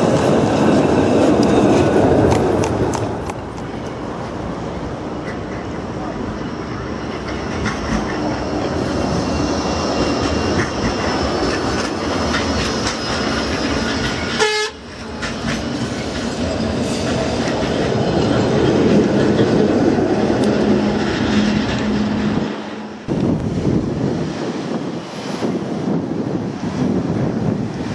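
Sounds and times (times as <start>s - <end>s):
tram wheels rumbling on rails: 0.0s - 27.9s.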